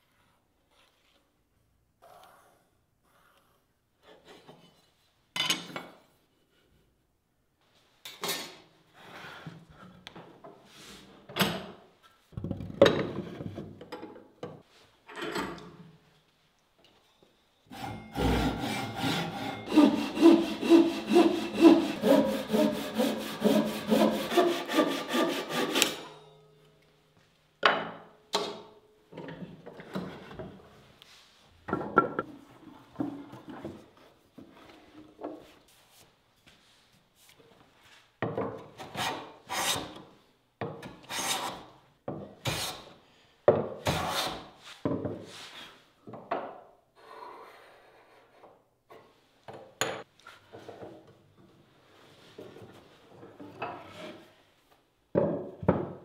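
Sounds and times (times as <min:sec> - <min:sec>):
hand plane shaving wood: 0:17.7 - 0:26.0, 0:38.9 - 0:40.0
hand saw cutting board: 0:17.7 - 0:26.1, 0:38.8 - 0:40.0, 0:41.0 - 0:41.7, 0:42.4 - 0:42.9, 0:43.8 - 0:44.5.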